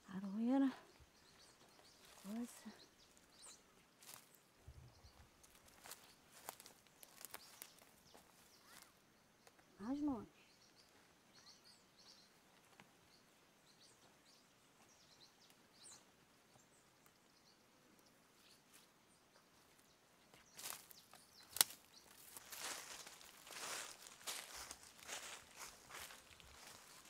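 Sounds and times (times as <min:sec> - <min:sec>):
small birds chirping: 0:00.0 - 0:27.0
footsteps crunching dry leaves: 0:04.0 - 0:04.4, 0:05.4 - 0:08.8, 0:20.5 - 0:27.0.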